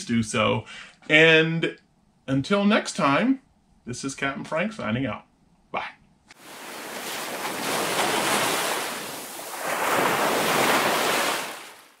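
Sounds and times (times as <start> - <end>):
ocean waves washing in: 6.4 - 12.0.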